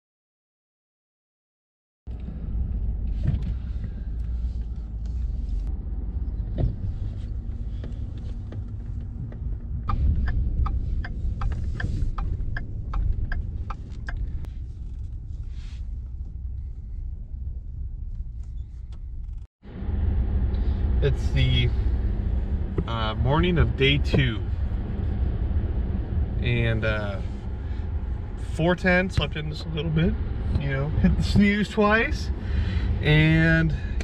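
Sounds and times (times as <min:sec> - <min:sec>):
engine and road rumble: 0:02.1 - 0:34.0
regular ticking: 0:07.8 - 0:14.5.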